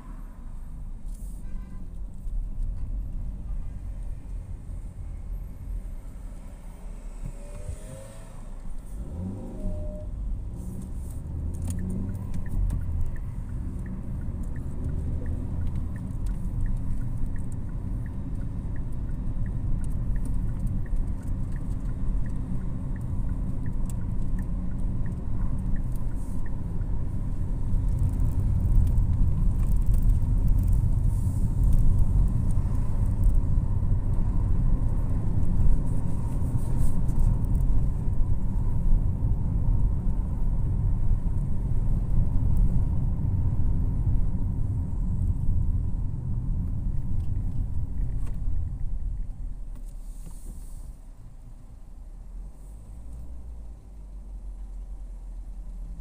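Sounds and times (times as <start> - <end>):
car engine and tyre rumble: 0.0 - 56.0
turn indicator ticking: 11.2 - 46.0.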